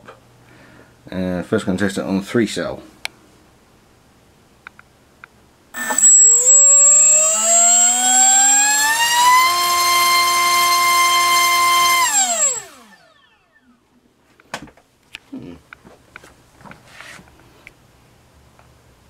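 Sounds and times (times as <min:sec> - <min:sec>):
drone motor whining: 0:05.8 - 0:13.6.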